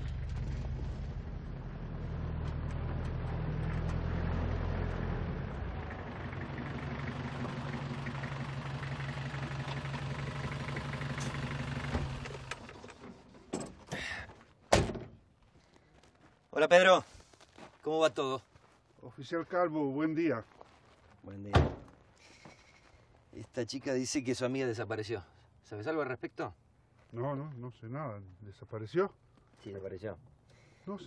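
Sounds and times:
pickup truck engine idling: 0:05.8 - 0:12.2.

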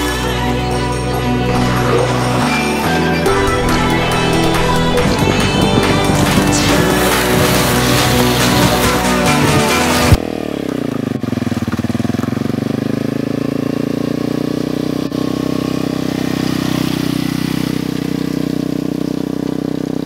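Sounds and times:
music: 0:00.0 - 0:10.2
engine running with pulsing note: 0:00.0 - 0:20.0.

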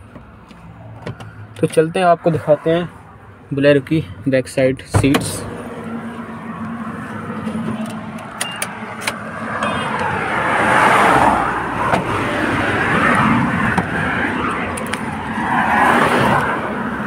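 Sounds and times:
outdoor rushing noise: 0:04.9 - 0:17.0
car door handle and latch clicking: 0:07.6 - 0:10.1.

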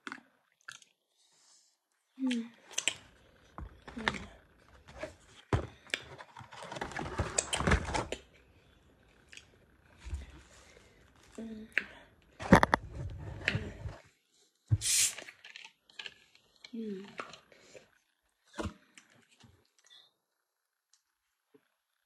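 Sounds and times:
cardboard boxes handled: 0:03.6 - 0:08.2.

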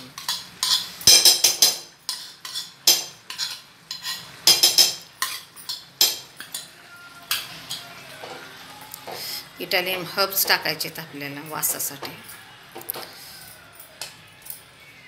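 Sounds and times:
metal spoon scraping metal bowl: 0:00.2 - 0:06.7.

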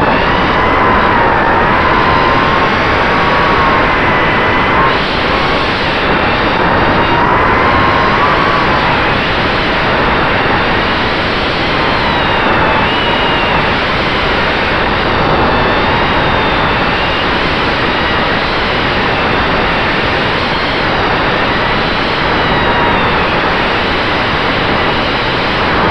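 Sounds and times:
quadcopter motors and propellers: 0:00.0 - 0:18.1.

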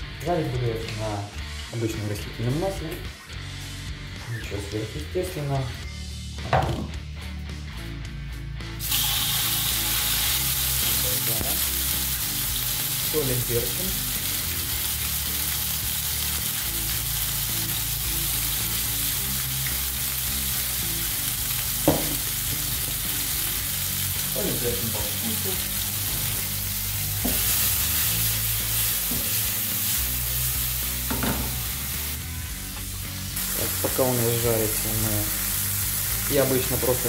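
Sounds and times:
chicken sizzling in oil: 0:08.8 - 0:32.3, 0:32.9 - 0:37.0.

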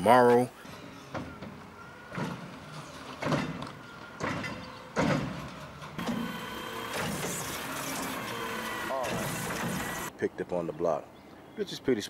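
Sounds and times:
faint mechanical hum: 0:00.5 - 0:10.1
trash cart clattering bangs: 0:01.1 - 0:07.5.

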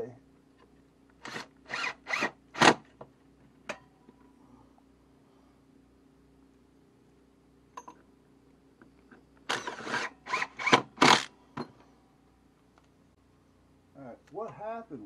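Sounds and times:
cordless drill driving screw: 0:01.2 - 0:02.8, 0:09.5 - 0:11.3.

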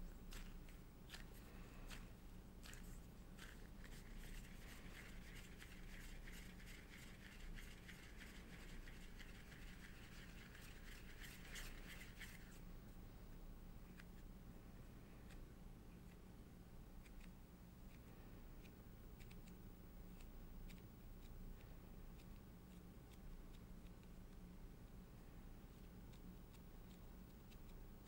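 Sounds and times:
hands kneading dough: 0:00.0 - 0:12.7.

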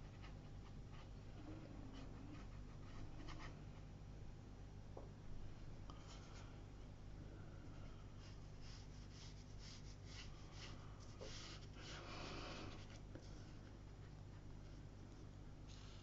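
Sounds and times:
low steady hum: 0:00.0 - 0:16.0
brush strokes on paper: 0:07.8 - 0:16.0.

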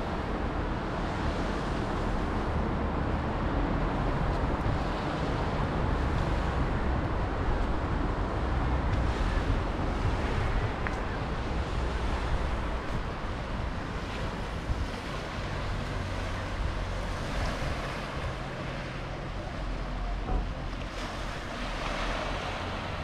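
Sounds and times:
wind on the microphone: 0:00.0 - 0:23.0
waves on a pebble beach: 0:04.1 - 0:23.0.

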